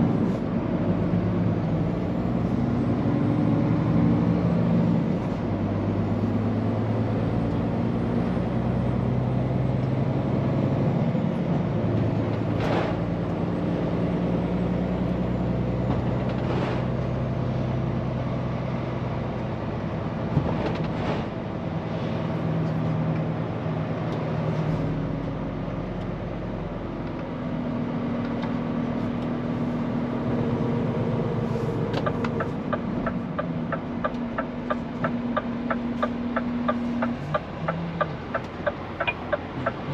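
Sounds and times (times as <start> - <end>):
road noise: 0.0 - 39.9
truck diesel engine running: 28.6 - 39.9.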